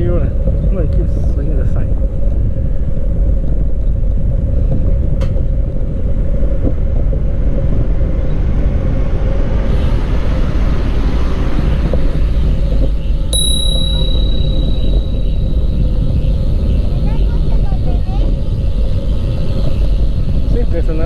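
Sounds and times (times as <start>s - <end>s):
road and tyre noise: 0.0s - 21.0s
wind rumble on microphone: 0.0s - 21.0s
thin steady hum: 13.4s - 16.8s.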